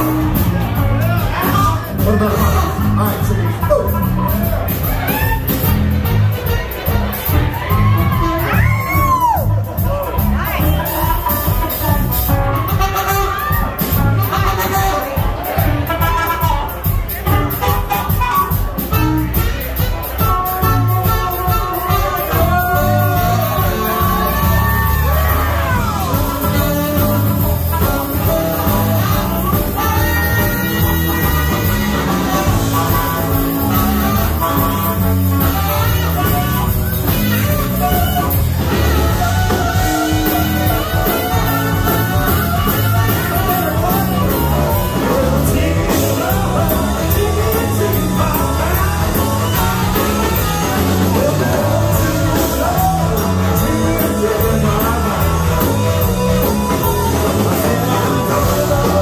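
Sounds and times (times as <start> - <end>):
live blues-rock band playing: 0.0 - 59.0
person singing: 20.2 - 59.0.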